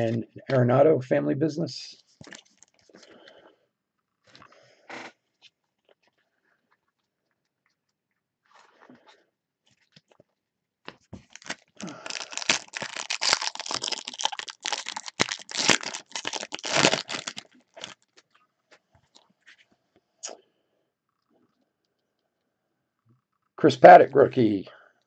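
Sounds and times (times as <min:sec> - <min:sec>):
foil wrapper crinkling and tearing: 0:11.2 - 0:18.3.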